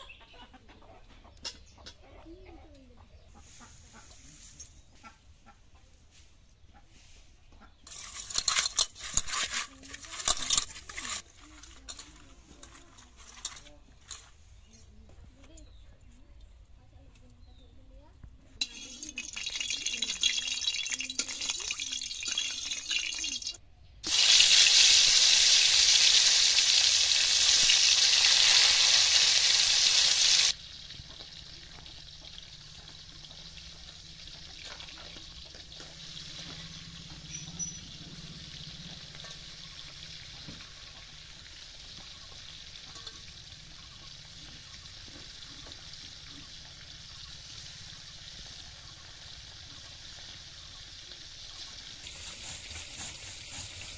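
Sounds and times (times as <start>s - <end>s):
metal spatula scraping wok: 7.8s - 14.4s, 18.6s - 21.5s, 41.8s - 43.9s
loud oil sizzle: 18.6s - 53.9s.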